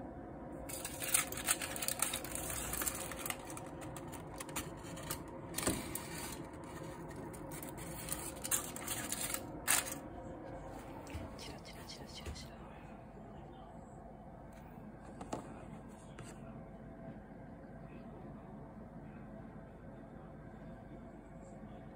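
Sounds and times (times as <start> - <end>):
aluminium foil crinkling: 0.7 - 10.0.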